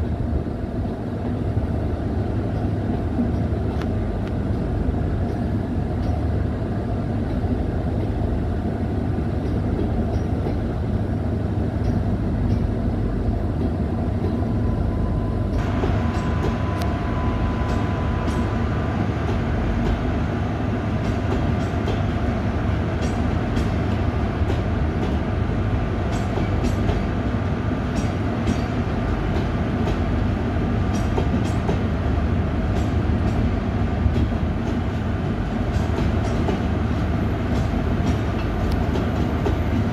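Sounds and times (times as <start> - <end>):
train wheels rumbling on rail: 0.0 - 39.9.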